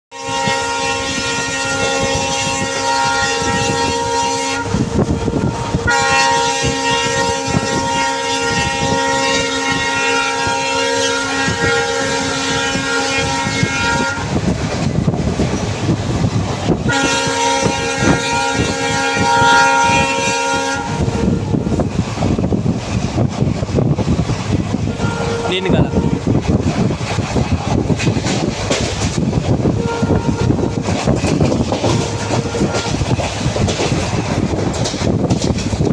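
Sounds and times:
locomotive horn blasts: 0:00.1 - 0:14.4, 0:16.8 - 0:21.9, 0:24.8 - 0:26.4, 0:29.7 - 0:33.2
train wheels clattering on rails: 0:04.6 - 0:35.9.

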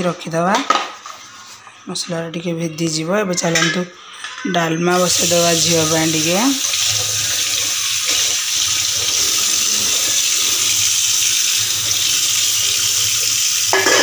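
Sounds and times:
tap running into sink: 0:05.0 - 0:14.0.

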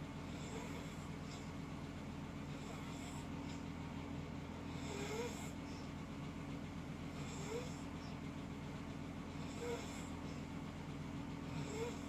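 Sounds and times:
steady low hum: 0:00.0 - 0:12.0
person snoring with whistle: 0:11.5 - 0:12.0.

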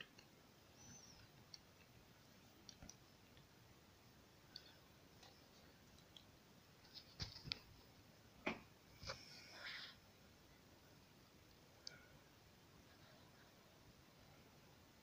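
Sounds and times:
faint scattered clicks: 0:02.6 - 0:03.5, 0:04.5 - 0:07.6.

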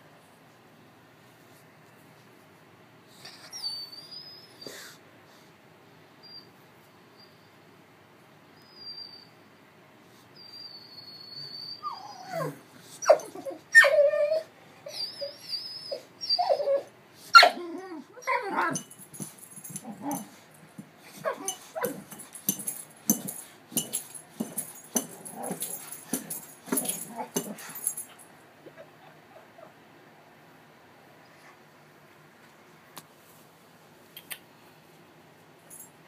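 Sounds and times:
dog whimpering and yelping: 0:03.3 - 0:04.9, 0:10.4 - 0:20.4, 0:21.0 - 0:29.8
dog whining: 0:03.3 - 0:04.9, 0:10.4 - 0:20.5, 0:21.1 - 0:29.8.

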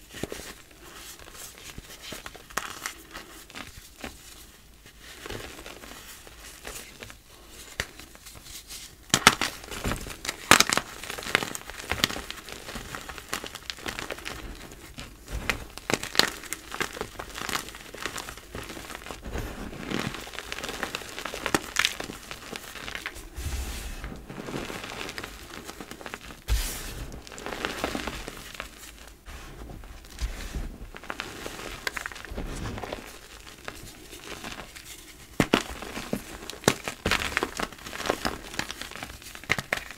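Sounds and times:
chalk crunching by hand: 0:15.9 - 0:36.9.

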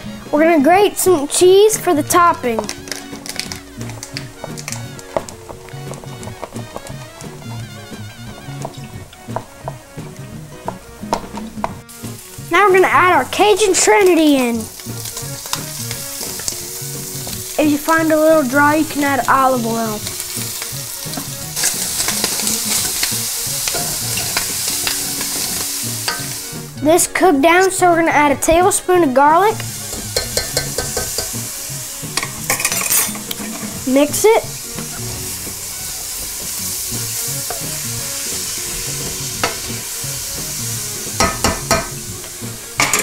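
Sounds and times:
vegetables sizzling in oil: 0:01.0 - 0:43.0
metal spoon clacking on pan: 0:21.2 - 0:26.4, 0:29.9 - 0:31.4, 0:32.2 - 0:33.6, 0:39.4 - 0:39.7, 0:41.2 - 0:42.0
utensil scraping a pan: 0:32.1 - 0:33.9.

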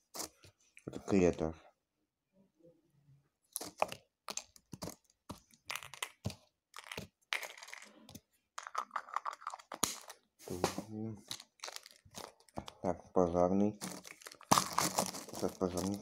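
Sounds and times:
plastic bag crinkling: 0:11.2 - 0:12.8, 0:13.8 - 0:16.0.

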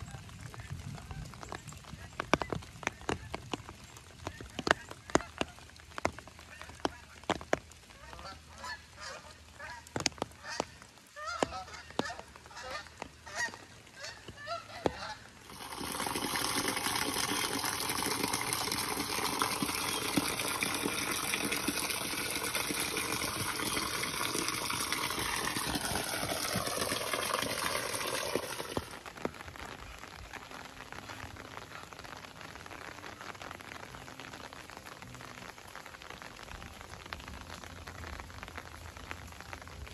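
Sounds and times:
rain dripping: 0:00.0 - 0:39.9
rain patter: 0:00.0 - 0:39.9
rainwater pouring and splashing: 0:00.0 - 0:39.9
geese honking: 0:08.0 - 0:28.9.

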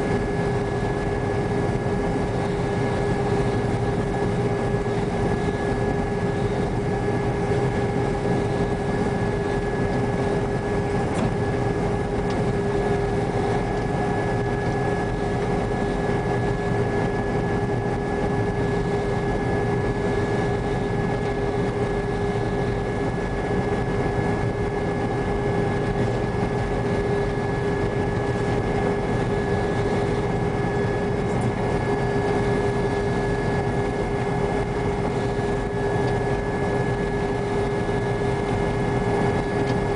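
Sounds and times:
combine harvester drone: 0:00.0 - 0:39.9.

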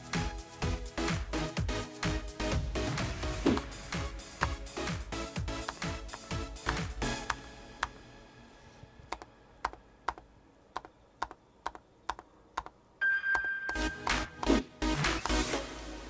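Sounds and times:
background music: 0:00.0 - 0:10.9, 0:13.0 - 0:16.0
keyboard key clicks: 0:10.8 - 0:12.8.

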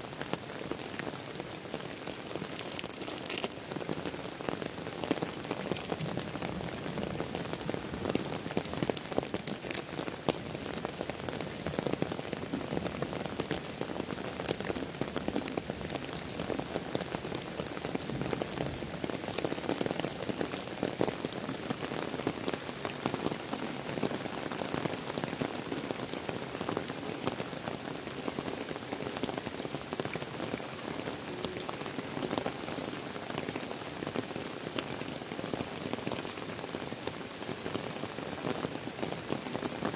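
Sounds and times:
heavy rain on leaves and water: 0:00.0 - 0:39.9.

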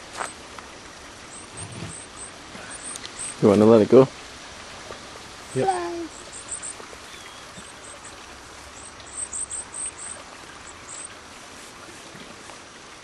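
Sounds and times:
songbird calling high thin notes: 0:01.3 - 0:03.8, 0:05.4 - 0:11.2.

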